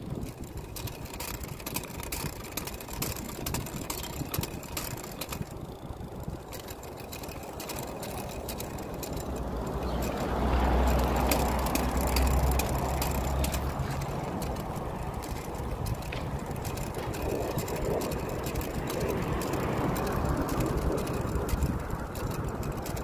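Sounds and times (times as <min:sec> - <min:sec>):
bicycle clicks and rattles: 0:00.0 - 0:23.0
wind and road rumble: 0:00.0 - 0:23.0.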